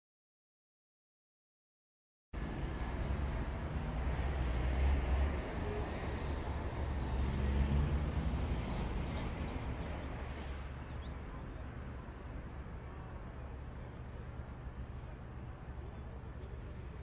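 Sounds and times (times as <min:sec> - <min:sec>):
low rumble of city traffic: 0:02.4 - 0:17.0
faint high squeal: 0:07.9 - 0:11.7.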